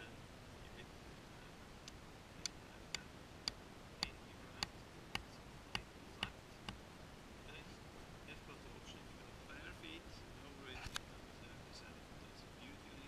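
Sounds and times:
mallet tapping tent peg: 3.5 - 6.8.

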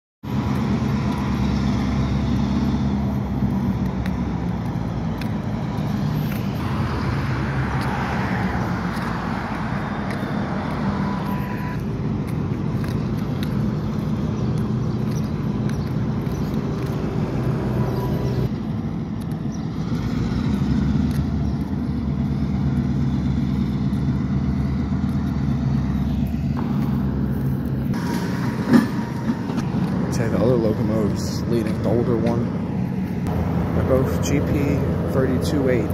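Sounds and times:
diesel engines droning: 0.2 - 35.9
road traffic: 0.2 - 35.9
vehicle rushing past: 0.4 - 12.0, 15.5 - 18.8.

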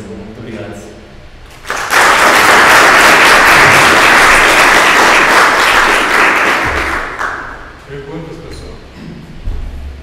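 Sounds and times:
audience applauding: 1.6 - 7.7.

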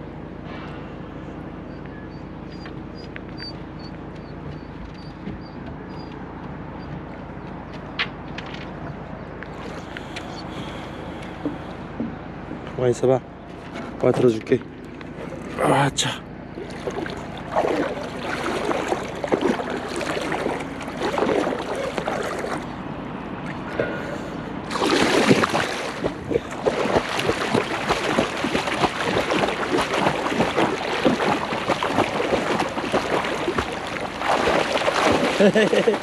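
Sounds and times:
river water sloshing: 9.5 - 11.9, 13.3 - 23.8, 24.6 - 36.0
dog paddling splashes: 14.9 - 15.7, 16.5 - 22.8, 24.7 - 36.0
dog splashing into water: 16.6 - 22.7, 24.7 - 36.0.

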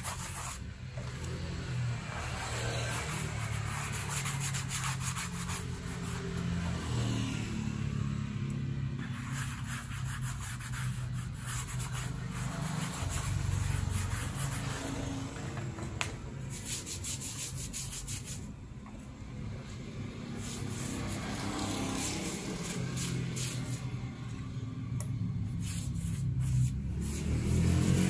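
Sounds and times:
glue brush scrubbing: 2.8 - 6.4, 9.0 - 14.8, 16.4 - 18.5, 20.3 - 23.9, 25.5 - 28.0.

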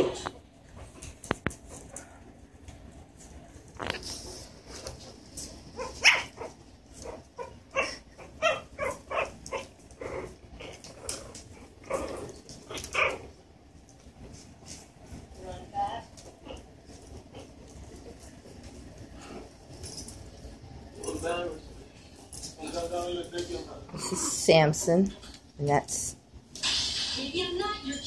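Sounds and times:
puppies rustling on bedding: 0.0 - 23.9
puppies yipping and squeaking: 5.6 - 9.8.

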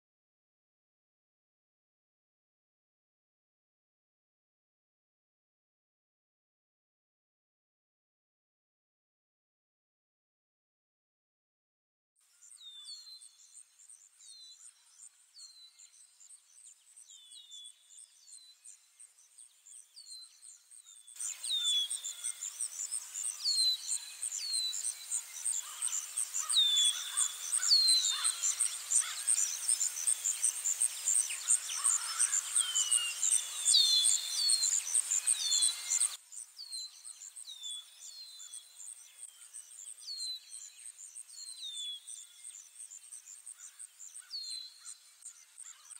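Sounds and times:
busy birdsong: 12.4 - 45.9
insects pulsing trill: 21.2 - 37.6.

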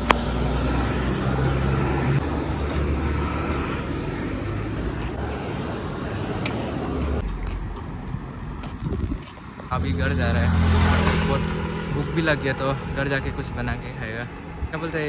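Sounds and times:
heavy trucks engine rumble: 0.0 - 15.0.

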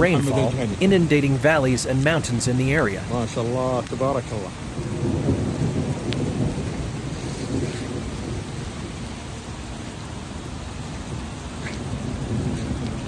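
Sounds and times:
flood water rushing: 0.0 - 13.0
thunder rolling: 0.0 - 13.0.

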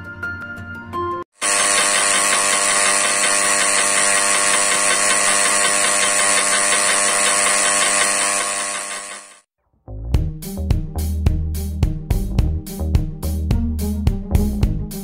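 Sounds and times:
engraving pen buzzing: 1.4 - 9.5.

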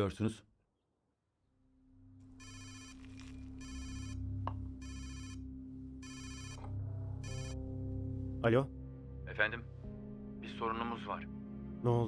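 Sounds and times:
mobile phone ringing: 2.3 - 7.6.

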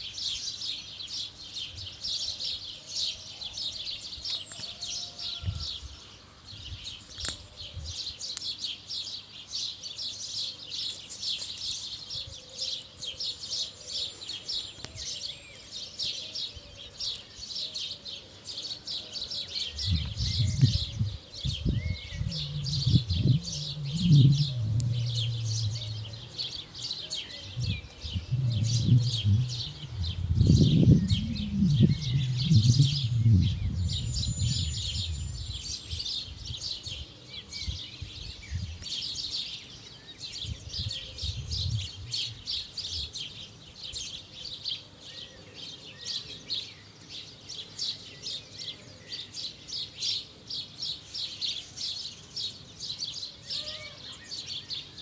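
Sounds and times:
small birds chirping: 0.0 - 55.0
low rumble: 19.8 - 35.7.

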